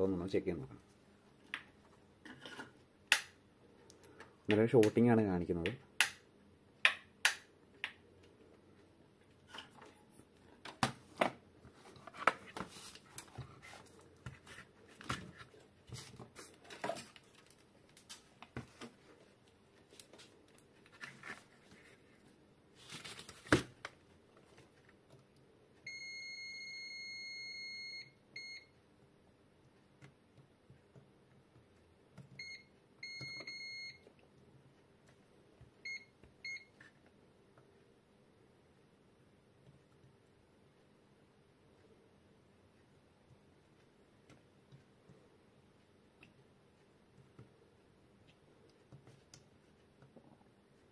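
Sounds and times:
multimeter continuity beeps: 25.9 - 28.8, 32.4 - 34.1, 35.8 - 36.8.

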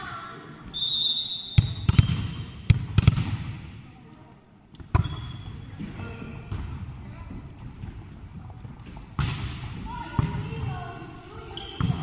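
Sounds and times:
short high whistle: 0.7 - 1.6
volleyball bouncing on wooden floor: 1.6 - 3.7, 4.8 - 10.9, 11.6 - 12.0.

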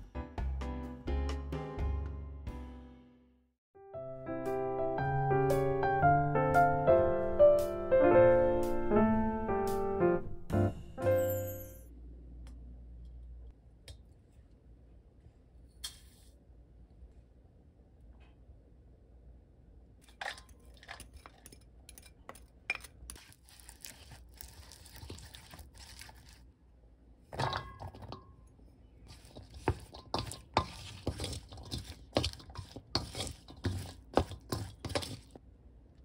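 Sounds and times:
clicks and scrapes against metal: 20.0 - 23.4, 29.1 - 35.4
paste stirred in a metal bowl: 20.1 - 26.5, 29.0 - 35.4
wet squelching of mixing by hand: 22.8 - 26.5, 29.0 - 35.4.

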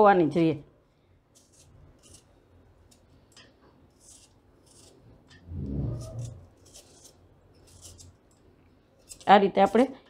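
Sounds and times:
peeler scraping potato: 1.3 - 3.1, 3.8 - 9.9
brief low hum: 5.5 - 6.4.

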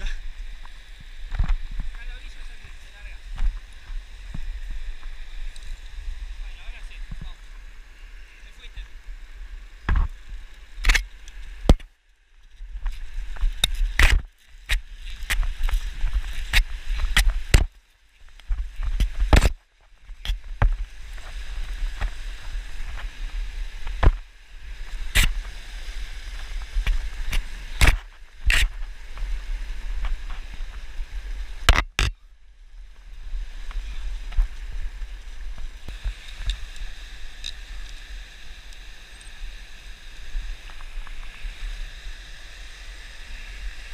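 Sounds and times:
clicks and knocks of climbing gear: 10.8 - 19.6, 26.8 - 28.8.

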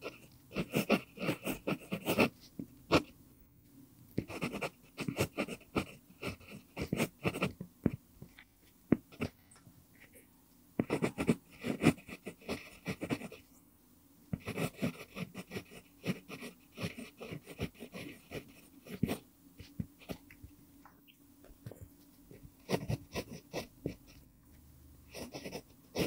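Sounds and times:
pencil scratching on paper: 0.0 - 3.1, 4.2 - 8.0, 10.8 - 13.5, 14.3 - 20.2, 22.1 - 24.2, 25.1 - 26.0.

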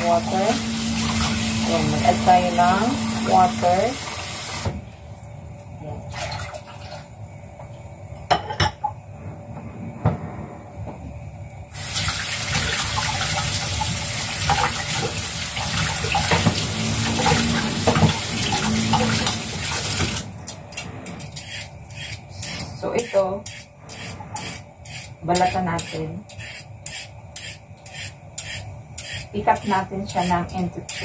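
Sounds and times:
tap running into sink: 12.5 - 20.2
knocks and clatter at sink: 16.1 - 19.2.

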